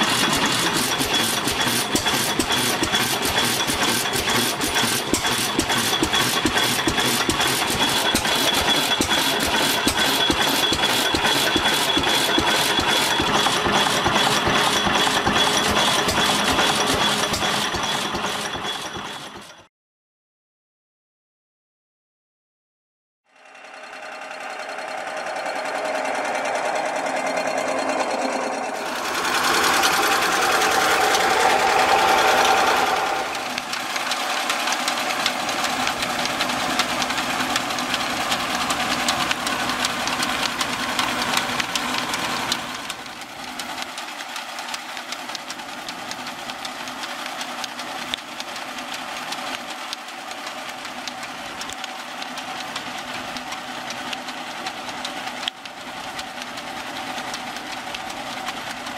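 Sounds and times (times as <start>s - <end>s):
belt-driven machinery clattering: 0.0s - 19.7s, 23.4s - 58.9s.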